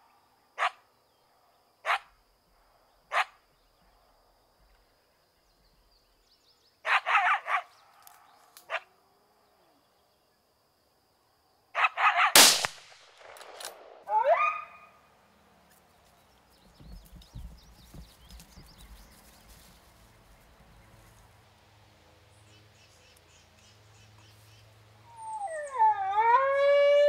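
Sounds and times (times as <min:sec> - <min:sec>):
coyote barking: 0:00.6 - 0:00.8, 0:01.8 - 0:02.2, 0:03.1 - 0:03.5, 0:06.8 - 0:07.8, 0:08.6 - 0:08.9, 0:11.7 - 0:12.4, 0:14.1 - 0:15.0
gunshot with ringing tail: 0:12.4 - 0:14.0
coyote yelping: 0:14.1 - 0:15.0.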